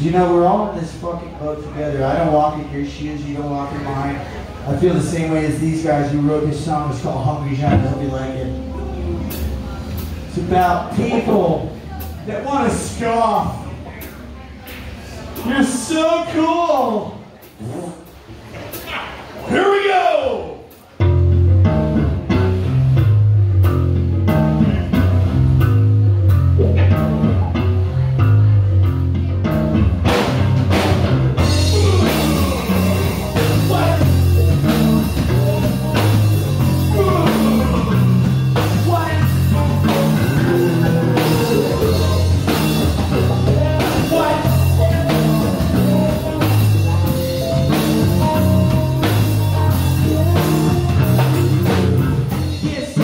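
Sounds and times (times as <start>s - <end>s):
rock band playing: 5.0s - 14.1s, 20.7s - 53.0s
person singing: 31.4s - 53.0s.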